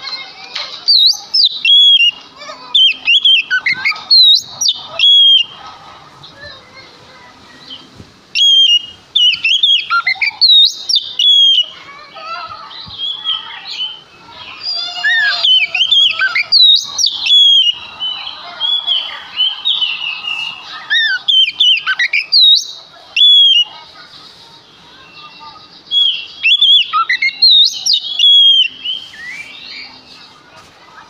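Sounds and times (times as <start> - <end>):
scratchy bird song: 0.0 - 31.0
bird singing whistled phrases: 0.9 - 2.2, 2.8 - 5.6, 8.4 - 11.8, 12.8 - 14.0, 14.6 - 23.7, 25.1 - 30.0.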